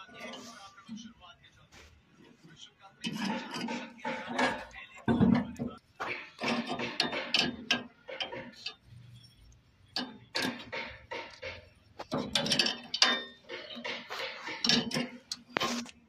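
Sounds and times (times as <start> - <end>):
metal clinks of spanner and fittings: 3.0 - 15.6.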